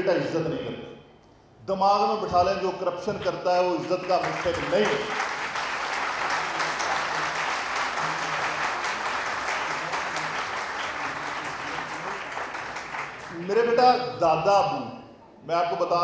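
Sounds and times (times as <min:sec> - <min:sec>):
audience applauding: 0:04.0 - 0:13.7.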